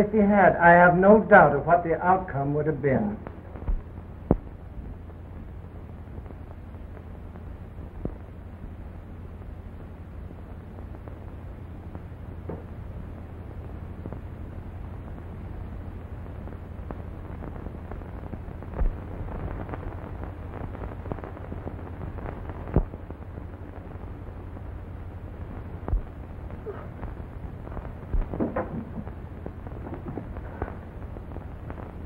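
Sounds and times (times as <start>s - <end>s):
low hum and hiss: 0.0s - 32.0s
light crackle: 1.8s - 32.0s
loud pops: 16.4s - 24.6s, 25.4s - 32.0s.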